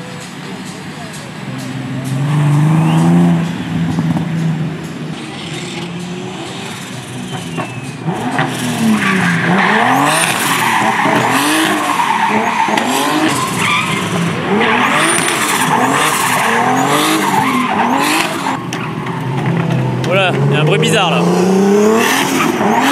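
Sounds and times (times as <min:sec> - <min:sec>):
car engines revving: 0:00.0 - 0:22.9
tyres squealing: 0:00.0 - 0:22.9.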